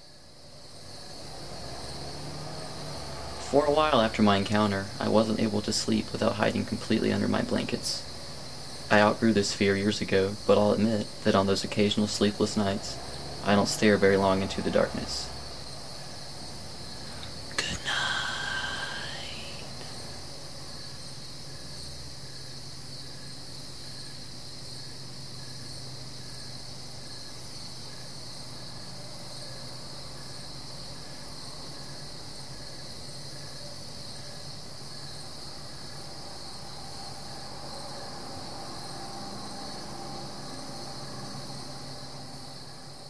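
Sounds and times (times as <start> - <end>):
crickets chirping: 0.0 - 43.0
faint low hum: 0.0 - 43.0.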